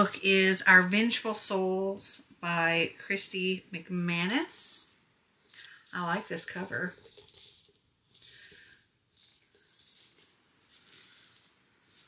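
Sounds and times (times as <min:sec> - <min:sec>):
hands handling a book: 0:04.8 - 0:12.0.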